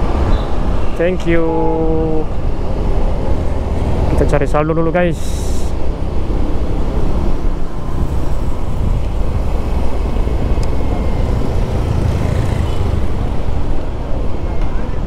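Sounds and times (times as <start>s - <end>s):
passing traffic: 0.0s - 15.0s
wind rushing on microphone: 0.0s - 15.0s
scooter engine: 8.0s - 13.8s.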